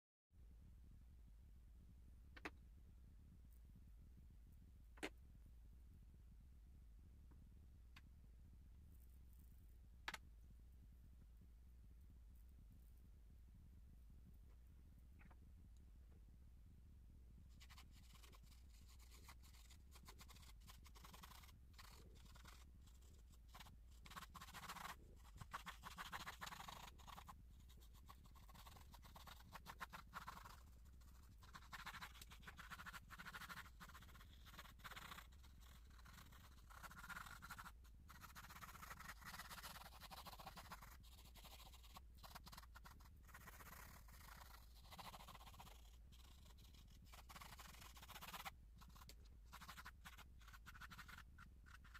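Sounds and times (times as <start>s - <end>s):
steady low hum: 0.4s - 51.9s
pencil scratching on paper: 17.6s - 51.9s.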